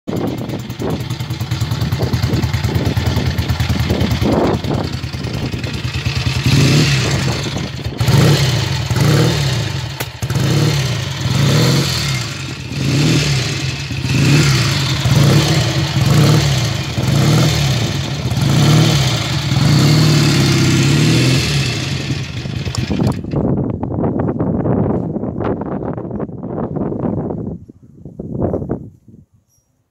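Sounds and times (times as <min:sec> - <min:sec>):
motorcycle engine revving: 0:00.1 - 0:23.4.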